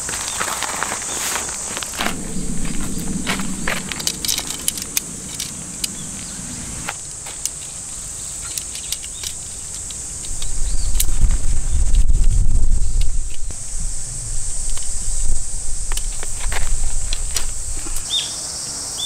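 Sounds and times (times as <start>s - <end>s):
high buzz of insects: 0.0s - 19.0s
low rumble: 1.8s - 7.2s, 10.3s - 18.0s
tent pole pieces clicking: 8.4s - 11.3s.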